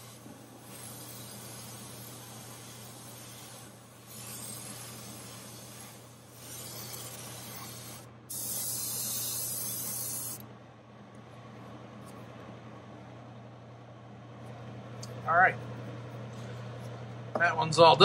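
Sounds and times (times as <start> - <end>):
airbrush spraying hiss: 0.0 - 10.4.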